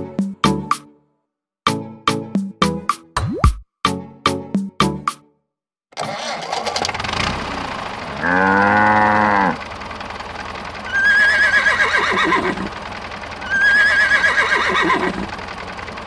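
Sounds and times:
engine-like rumble: 0:06.0 - 0:16.0
cow mooing: 0:08.1 - 0:09.6
horse whinnying: 0:10.9 - 0:12.7, 0:13.4 - 0:15.3.

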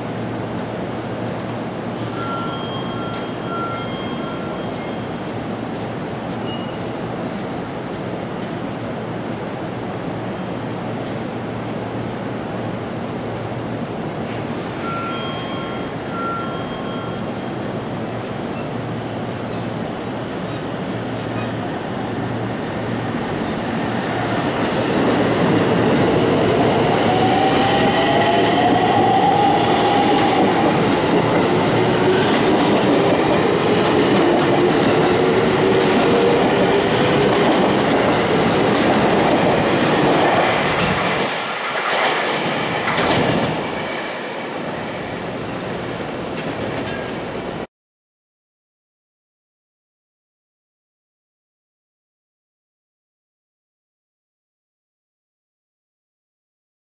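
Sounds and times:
electric train humming: 0:21.0 - 0:47.6
train wheel noise: 0:21.3 - 0:47.6
rail-joint clatter: 0:32.3 - 0:44.2, 0:46.3 - 0:47.4.

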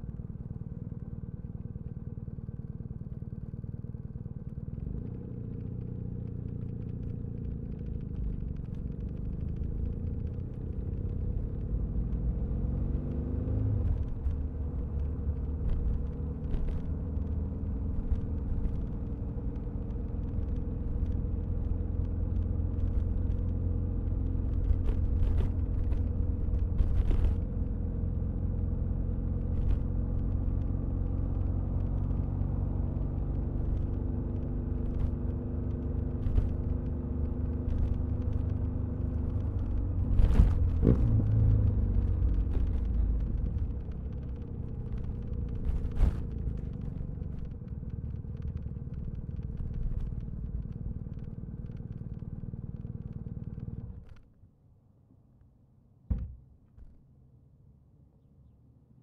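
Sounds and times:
motorcycle engine rumble: 0:00.0 - 0:11.9, 0:13.8 - 0:54.2, 0:56.1 - 0:57.0.

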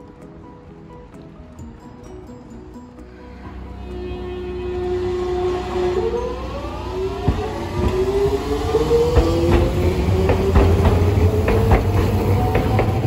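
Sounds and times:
tram motor whine: 0:03.0 - 0:13.0
wheels clicking over rails: 0:06.0 - 0:13.0.

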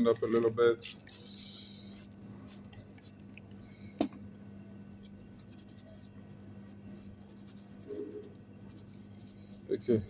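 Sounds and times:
scratchy rubbing on circuit board: 0:05.4 - 0:10.0.

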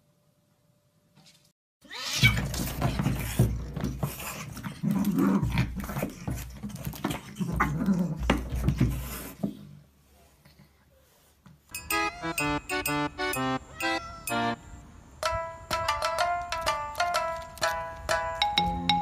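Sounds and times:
animals scuffling: 0:02.2 - 0:09.5
dog and cat growling snarling: 0:02.9 - 0:08.4.

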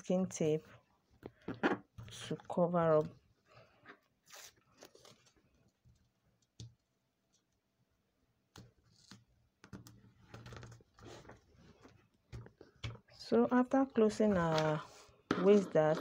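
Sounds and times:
paper rustling: 0:14.2 - 0:15.6.

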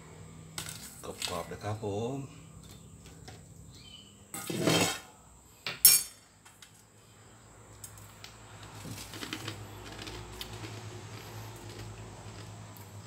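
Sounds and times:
bowl scraping on table: 0:04.4 - 0:05.1
metallic clink: 0:05.8 - 0:06.2.

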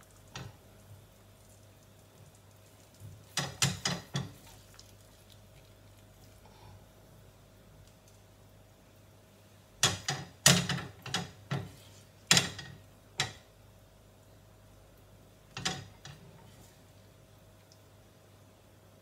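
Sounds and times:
spatula knocking in frying pan: 0:03.3 - 0:04.5, 0:09.8 - 0:13.5.

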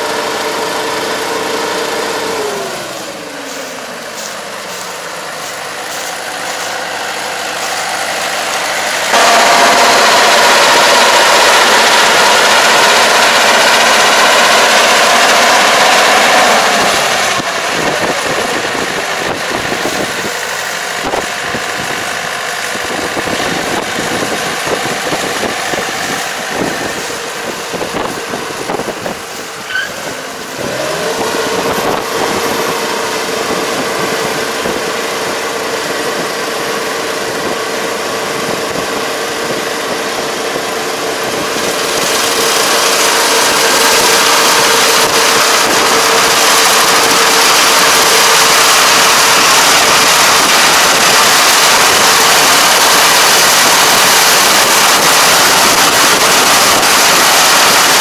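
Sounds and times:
combine harvester running: 0:00.0 - 0:58.0.

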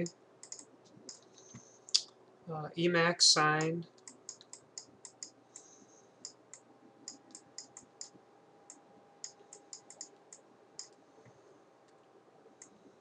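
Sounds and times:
computer mouse clicks: 0:00.4 - 0:01.6, 0:03.9 - 0:11.0.

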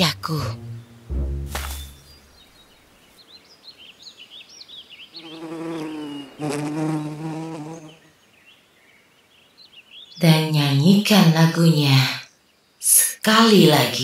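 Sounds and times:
birds chirping: 0:00.0 - 0:14.0
buzzing insect droning: 0:05.2 - 0:08.1.

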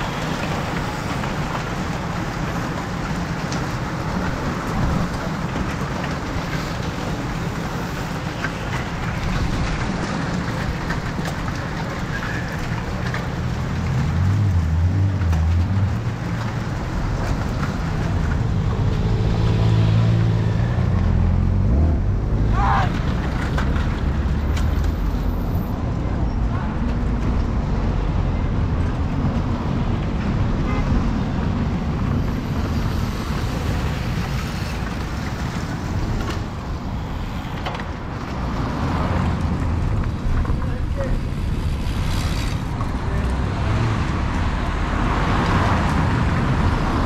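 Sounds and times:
car engines: 0:00.0 - 0:47.0
bicycle tyres hissing on road: 0:41.0 - 0:42.7.

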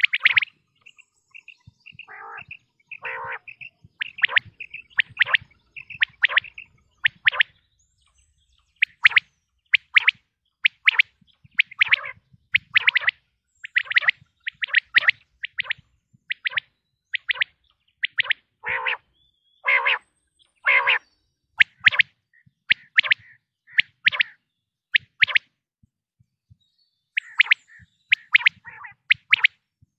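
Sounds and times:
quail calling: 0:00.0 - 0:00.5, 0:02.0 - 0:07.5, 0:10.7 - 0:16.6, 0:17.2 - 0:20.0, 0:20.6 - 0:21.0, 0:22.7 - 0:24.4, 0:27.2 - 0:29.5.

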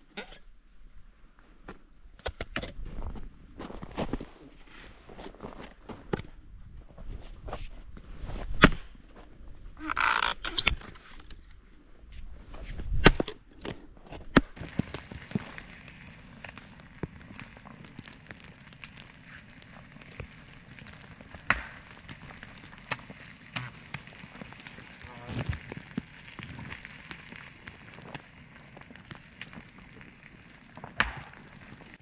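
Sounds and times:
campfire crackling: 0:14.6 - 0:32.0.

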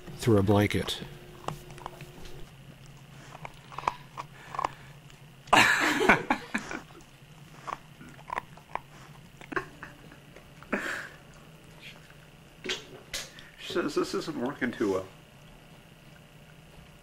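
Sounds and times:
dog mouth noises and clicks: 0:01.4 - 0:05.2, 0:06.9 - 0:10.7.

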